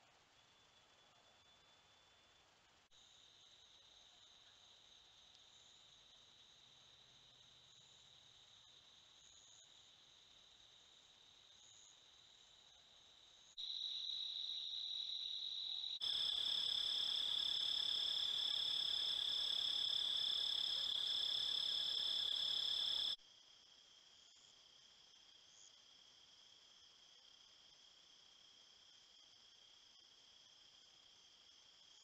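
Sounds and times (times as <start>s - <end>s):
crickets chirping: 1.4s - 23.6s.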